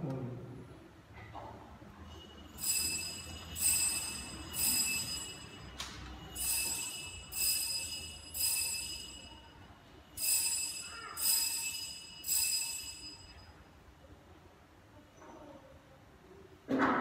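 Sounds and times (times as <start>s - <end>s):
altar bells ringing: 2.4s - 13.6s.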